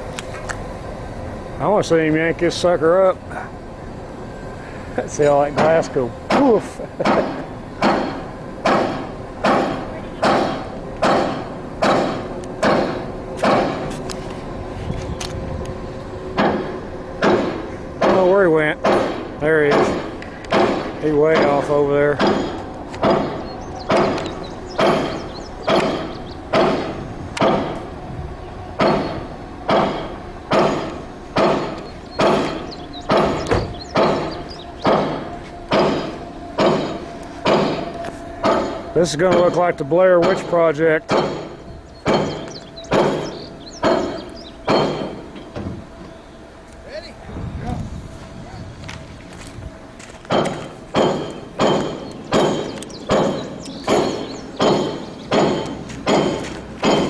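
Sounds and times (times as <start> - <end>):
metallic thuds with ringing tail: 5.4 - 13.9, 16.4 - 27.8, 28.8 - 45.8, 50.3 - 57.0
loud bangs on metal: 5.6 - 13.9, 16.4 - 27.8, 28.8 - 45.8, 50.3 - 57.0.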